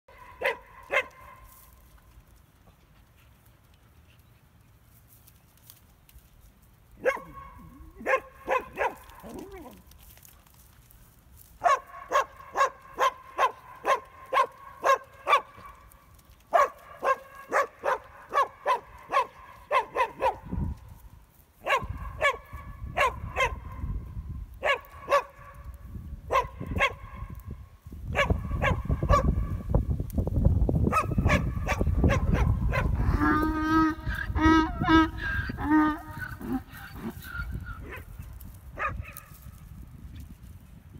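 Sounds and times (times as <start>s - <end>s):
dog barking: 0.1s - 1.5s, 7.0s - 9.8s, 11.6s - 15.8s, 16.5s - 20.8s, 21.6s - 24.0s, 24.6s - 25.6s, 26.3s - 27.3s, 28.1s - 29.6s, 30.9s - 33.0s, 38.8s - 39.3s.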